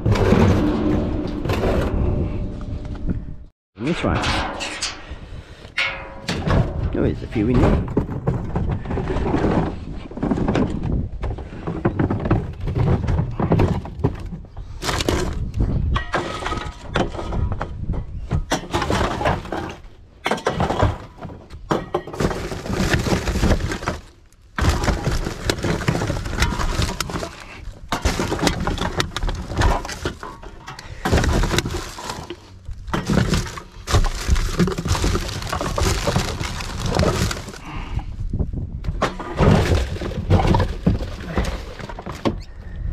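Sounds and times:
drink cans clattering: 21.7 - 37.8, 39.0 - 42.3
plastic bags crinkling: 31.1 - 37.8.

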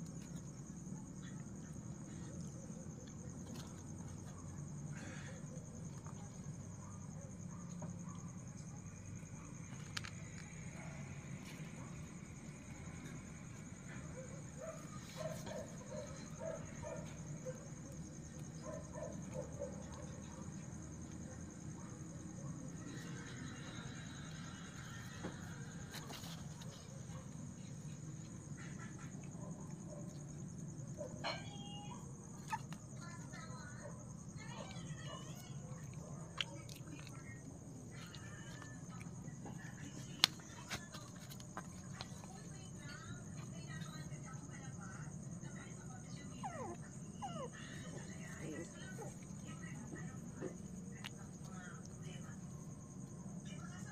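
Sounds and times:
insect trill: 0.0 - 53.9
puppies whimpering: 46.4 - 48.1.

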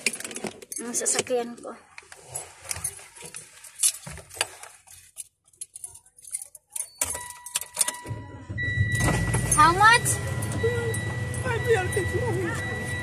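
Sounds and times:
keys clinking and rustling: 0.0 - 1.4, 2.2 - 8.1
steady high electronic tone: 8.1 - 13.0.

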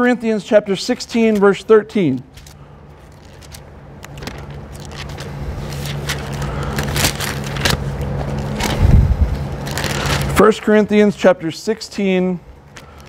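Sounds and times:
book pages rustling: 2.3 - 10.5.

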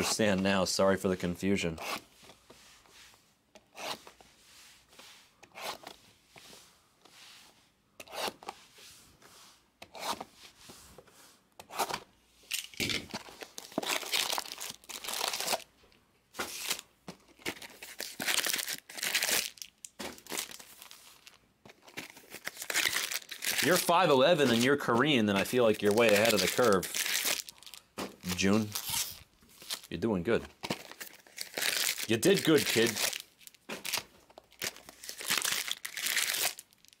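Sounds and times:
plastic shrink wrap crinkling: 12.5 - 15.7, 16.4 - 30.0, 30.6 - 37.0.

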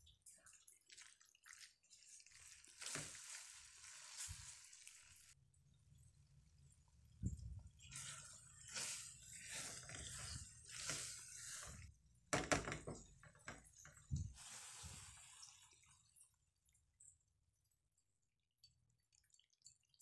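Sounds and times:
spatula stirring creamy pasta: 0.1 - 5.4, 7.6 - 12.3.

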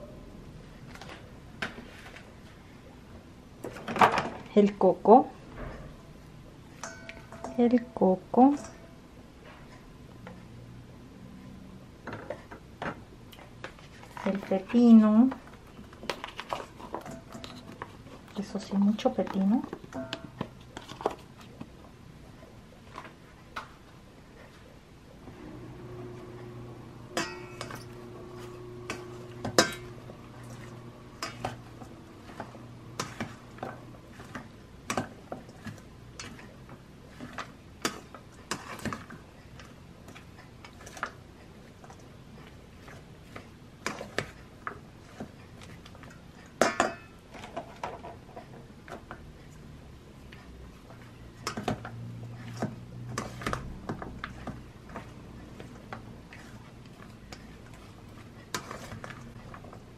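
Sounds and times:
low steady hum: 0.0 - 59.9
spatula knocking metal bowl: 27.1 - 27.8.

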